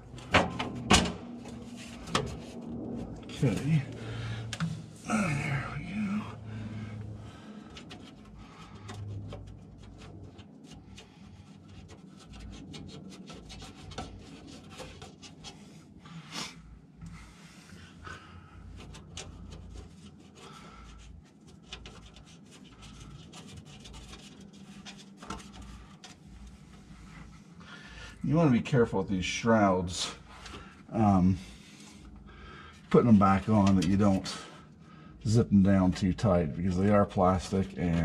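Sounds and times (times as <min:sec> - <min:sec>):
plastic scraping on metal: 0:07.5 - 0:15.6, 0:18.7 - 0:27.2.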